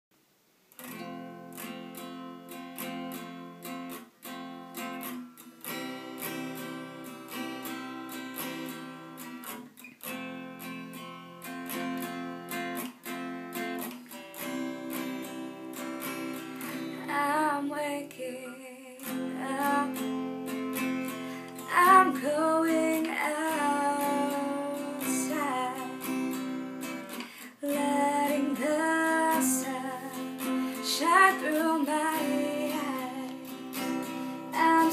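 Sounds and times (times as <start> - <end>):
acoustic guitar strumming: 0.8 - 17.4, 19.0 - 34.9
woman singing: 16.7 - 20.3, 20.9 - 34.9.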